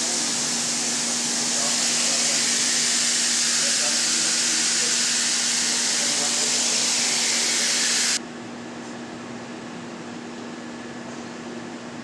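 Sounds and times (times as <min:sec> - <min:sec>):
loud steady hiss: 0:00.0 - 0:08.2
factory machinery hum: 0:00.0 - 0:12.0.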